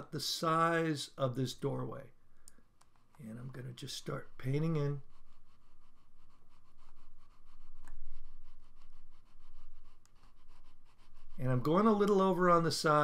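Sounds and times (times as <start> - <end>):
mouse rubbing across pad: 2.9 - 13.0.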